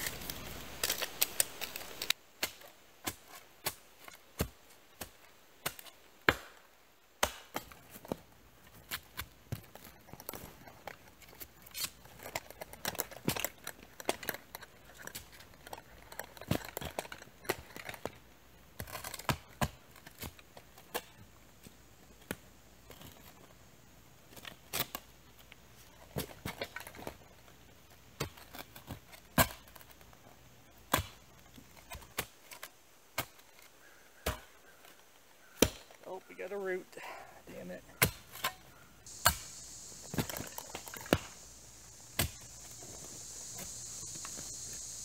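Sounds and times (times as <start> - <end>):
shovel digging into soil: 11.3 - 18.1, 38.0 - 44.7.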